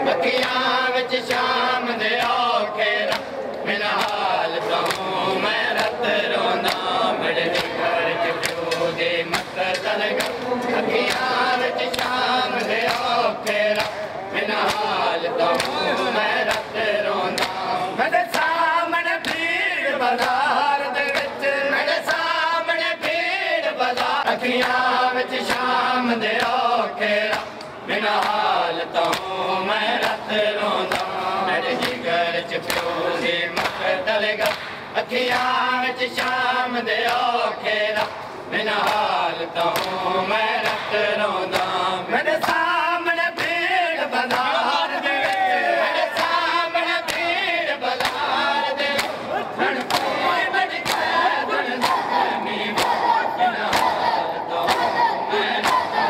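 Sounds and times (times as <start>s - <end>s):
men chanting: 0.0s - 56.0s
hands slapping chests: 3.0s - 5.1s, 6.6s - 6.9s, 8.4s - 15.8s, 27.3s - 28.4s, 29.0s - 29.3s, 33.6s - 35.6s, 38.8s - 40.0s, 48.9s - 50.2s, 50.8s - 51.2s, 53.6s - 55.0s.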